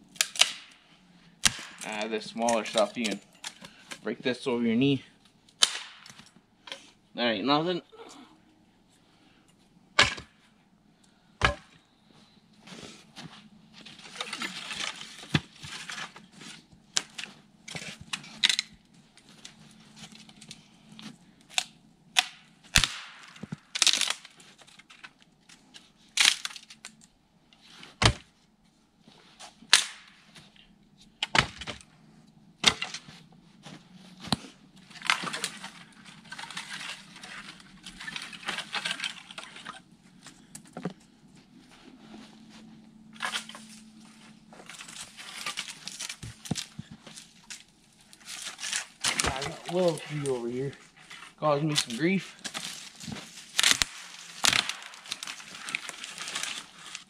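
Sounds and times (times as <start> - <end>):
twigs rustling and crackling: 0.0 - 7.0, 11.0 - 28.0, 29.0 - 57.0
branches snapping: 0.1 - 0.8, 1.4 - 3.8, 5.5 - 6.3, 13.8 - 27.1, 29.7 - 30.3, 34.2 - 40.7, 43.1 - 50.4, 51.7 - 57.0.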